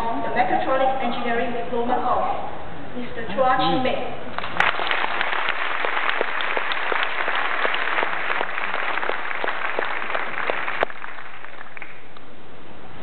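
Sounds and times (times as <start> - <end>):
audience applauding: 4.4 - 12.2.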